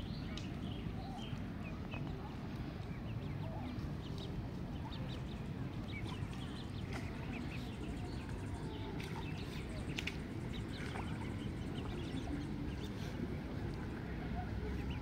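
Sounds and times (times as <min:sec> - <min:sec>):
ducklings peeping: 0:03.0 - 0:13.2, 0:14.7 - 0:15.0.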